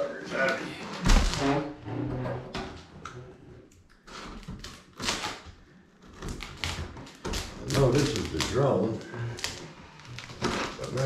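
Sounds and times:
blade slicing packing tape: 4.6 - 5.4.

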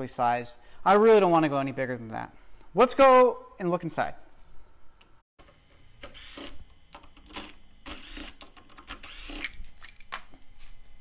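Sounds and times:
power screwdriver whirring: 6.0 - 6.7, 7.3 - 9.6.

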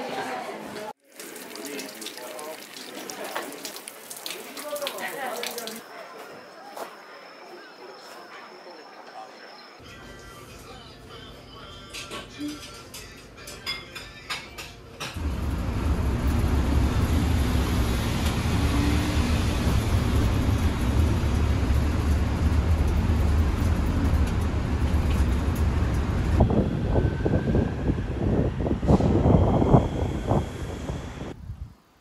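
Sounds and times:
moving vehicle rumble: 15.2 - 31.5.

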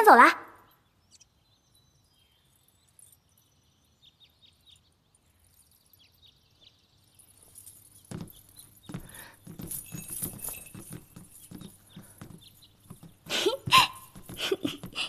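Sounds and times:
horse hooves clip-clopping: 7.2 - 15.0.

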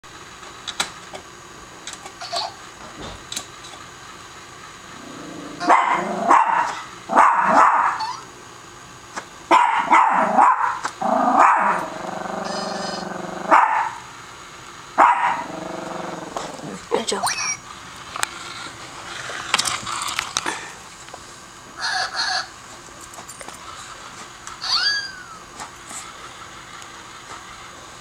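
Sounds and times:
small dog barking: 5.6 - 8.2, 9.5 - 14.0, 15.0 - 15.6.

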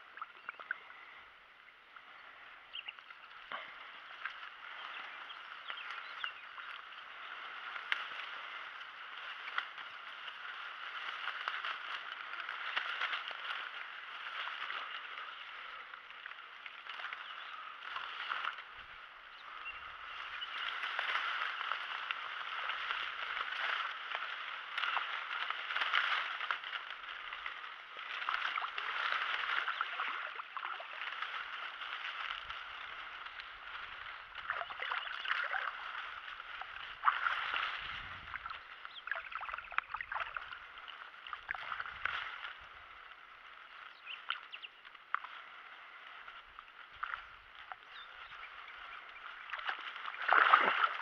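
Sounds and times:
dry reeds rustling and crackling: 0.0 - 51.0.

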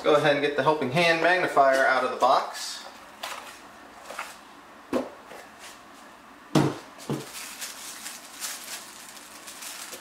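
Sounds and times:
dull knocks on workbench: 4.9 - 5.2, 6.5 - 7.3
plastic bag rustling: 7.0 - 10.0.

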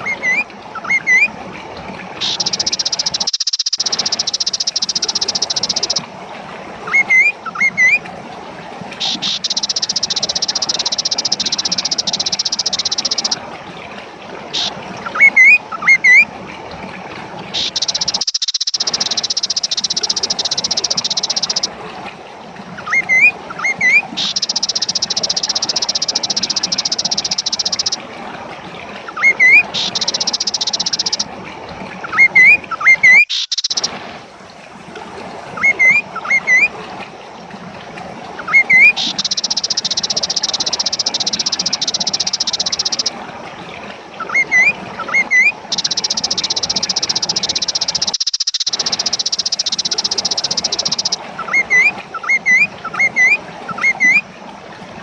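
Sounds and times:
bird chirps: 2.2 - 6.0, 9.0 - 13.4, 14.6 - 16.2, 17.6 - 21.7, 22.9 - 28.0, 29.2 - 31.2, 32.1 - 33.9, 38.5 - 43.1, 44.3 - 54.2.

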